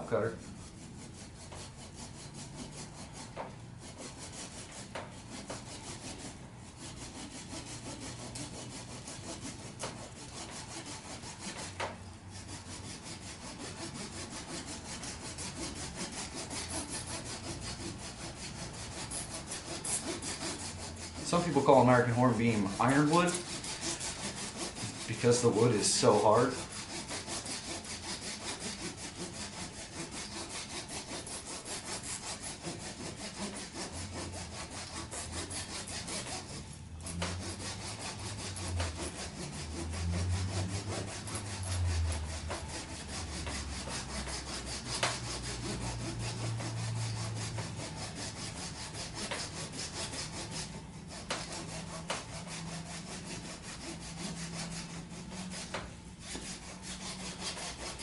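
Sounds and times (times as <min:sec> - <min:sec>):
hand saw cutting hard wood: 0:00.0 - 0:58.0.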